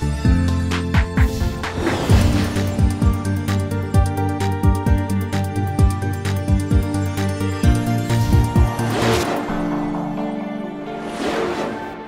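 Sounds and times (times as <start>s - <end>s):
background music with held notes: 0.0s - 12.0s.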